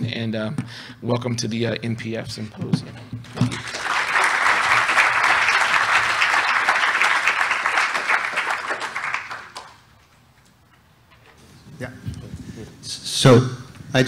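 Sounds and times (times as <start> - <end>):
audience applause: 3.4 - 9.9.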